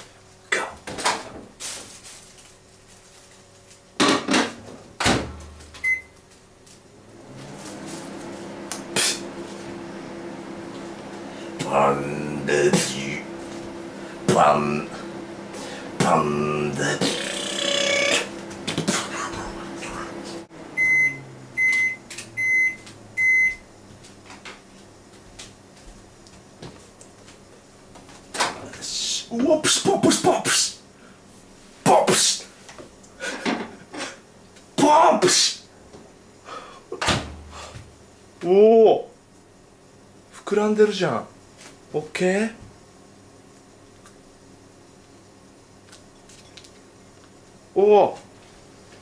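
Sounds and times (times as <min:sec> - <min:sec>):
microwave oven humming: 0:00.0 - 0:49.0
microwave oven beeping: 0:05.0 - 0:06.2, 0:16.2 - 0:18.6, 0:20.6 - 0:23.8.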